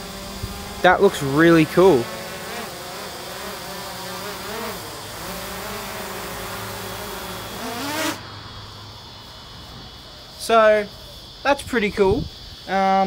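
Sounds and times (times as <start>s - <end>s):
drone buzzing hum: 0.0s - 8.3s.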